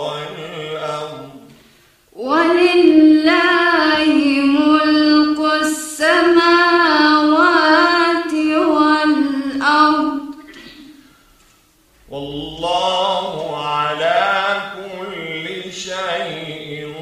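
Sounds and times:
woman chanting melodically: 0.0 - 1.4, 2.2 - 10.9.

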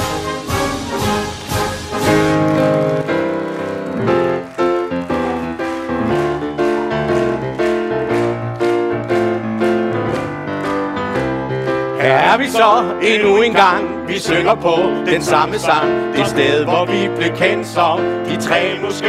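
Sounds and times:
piano playing chords: 0.0 - 19.0.

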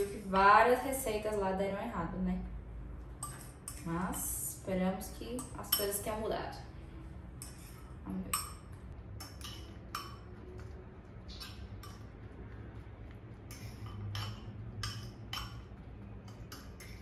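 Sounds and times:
metal utensil scraping a bowl: 7.4 - 8.5, 13.4 - 15.6.

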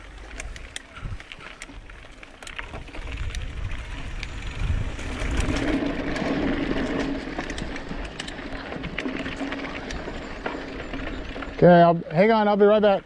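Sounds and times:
bike clicks and rattles: 0.0 - 13.0
tyres on dirt and stones: 0.0 - 13.0
wind buffeting microphone: 2.6 - 11.8.

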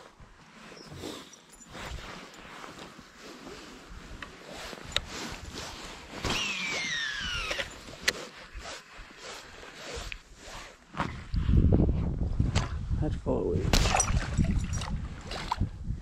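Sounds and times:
fishing reel spool whine: 6.3 - 8.3.

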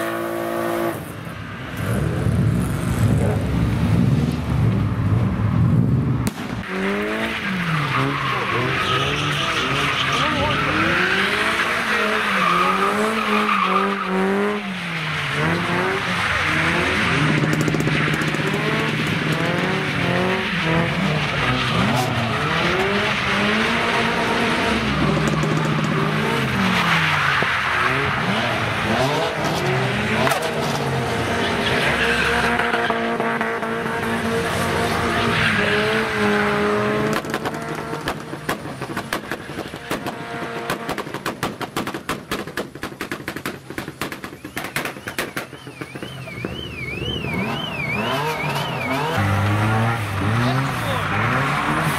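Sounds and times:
car engine revving: 6.3 - 41.3, 44.4 - 51.9
tyres squealing: 7.4 - 18.8
sharp exhaust pops: 37.1 - 47.6.

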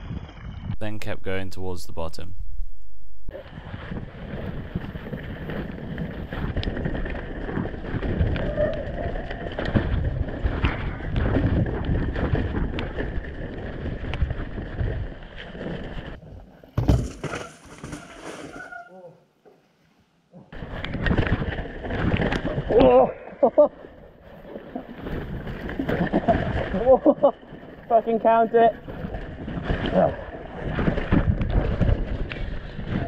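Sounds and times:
bike tyres rumbling over ground: 3.3 - 18.2, 28.8 - 33.0
bike knocks and clatter: 16.8 - 18.0.

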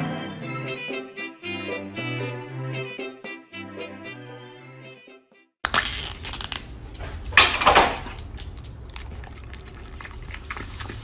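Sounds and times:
thin plastic crinkling: 5.6 - 11.0
dog licking yogurt: 8.8 - 11.0.

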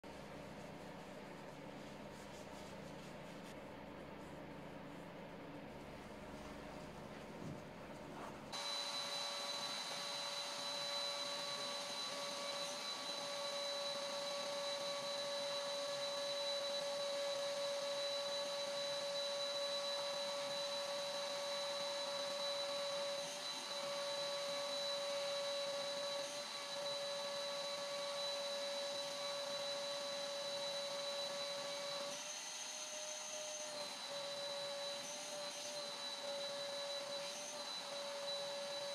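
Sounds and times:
vacuum cleaner running: 6.4 - 38.9.

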